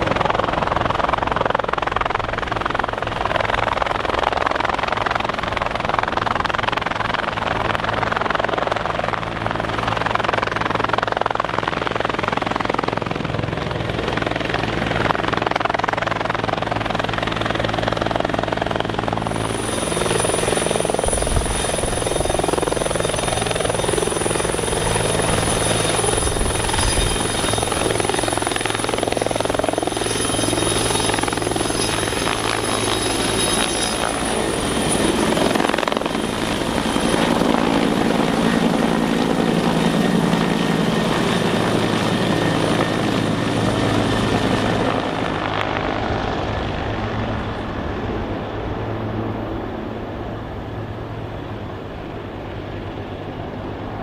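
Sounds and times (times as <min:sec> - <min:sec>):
helicopter rotor hovering: 0:00.0 - 0:54.0
high turbine whine: 0:12.0 - 0:54.0.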